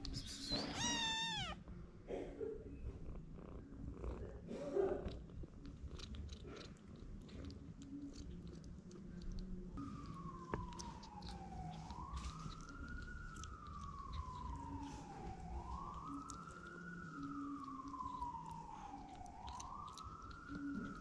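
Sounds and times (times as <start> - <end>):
kitten meowing: 0.0 - 1.6
kitten suckling at bottle: 3.8 - 21.0.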